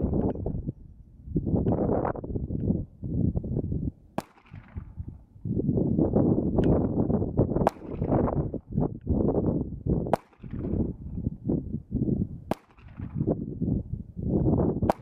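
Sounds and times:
wind buffeting microphone: 0:00.0 - 0:15.0
pistol shots: 0:04.2 - 0:05.0, 0:07.6 - 0:08.2, 0:10.1 - 0:10.8, 0:12.5 - 0:13.2.

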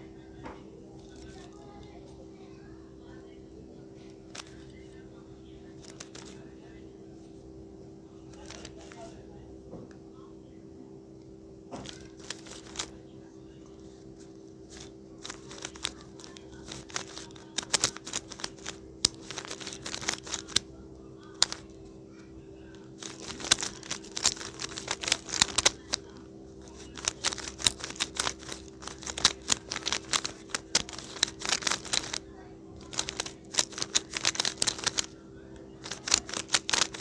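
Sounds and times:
steady low hum: 0:00.0 - 0:37.0
plastic cube clacking: 0:04.3 - 0:04.7, 0:05.8 - 0:06.4, 0:08.3 - 0:09.0, 0:11.8 - 0:13.0, 0:14.7 - 0:20.7, 0:21.3 - 0:21.8, 0:22.9 - 0:32.2, 0:32.8 - 0:35.1, 0:35.8 - 0:37.0.

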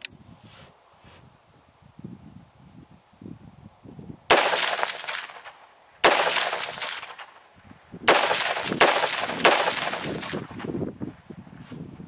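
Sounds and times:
rifle shots with echo: 0:04.3 - 0:07.4, 0:08.1 - 0:10.7.

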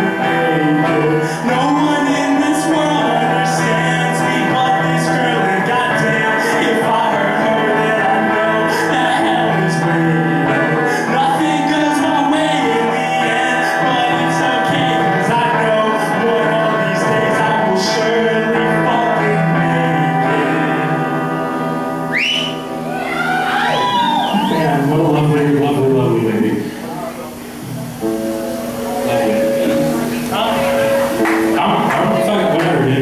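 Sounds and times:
man singing: 0:00.0 - 0:21.5, 0:24.0 - 0:26.7, 0:29.0 - 0:33.0
electric guitar chords: 0:00.0 - 0:33.0
sharp rising whistle: 0:22.1 - 0:24.8.

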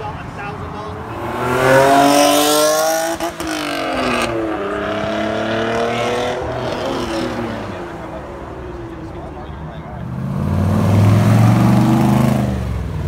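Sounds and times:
car engine accelerating hard: 0:01.0 - 0:08.2, 0:09.8 - 0:13.0.

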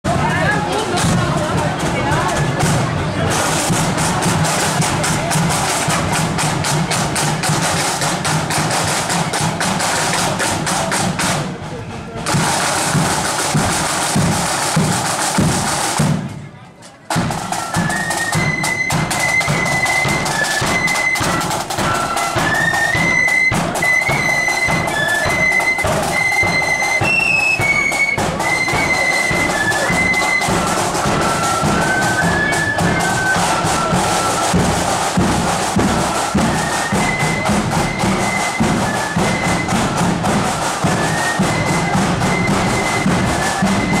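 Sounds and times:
side drums: 0:00.1 - 0:16.5, 0:17.1 - 0:44.0
high flute melody: 0:17.3 - 0:44.0.

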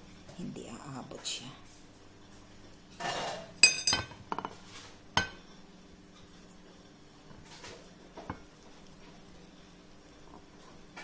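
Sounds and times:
metal spoon clinking on plate: 0:03.0 - 0:04.2.

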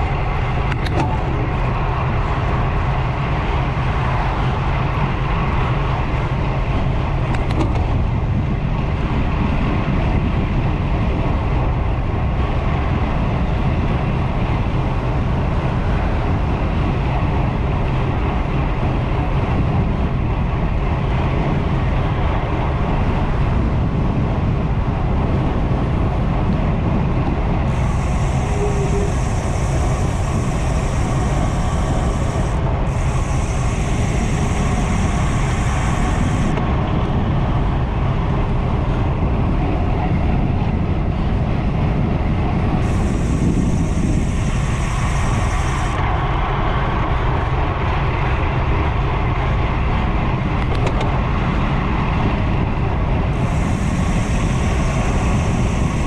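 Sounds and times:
bicycle road noise: 0:00.0 - 0:56.0
wind rumble on microphone: 0:00.0 - 0:56.0
high hiss: 0:27.7 - 0:36.6, 0:42.8 - 0:46.6, 0:53.3 - 0:56.0.

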